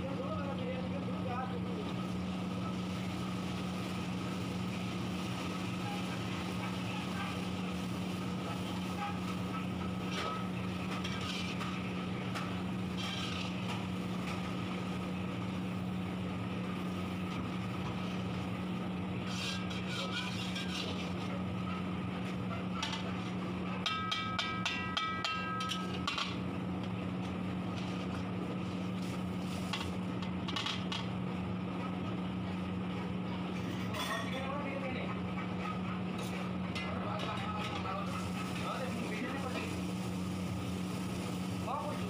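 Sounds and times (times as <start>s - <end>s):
low mechanical drone: 0.0s - 33.9s
metal ladle scraping a pan: 11.0s - 11.7s, 12.9s - 13.7s, 19.2s - 21.2s.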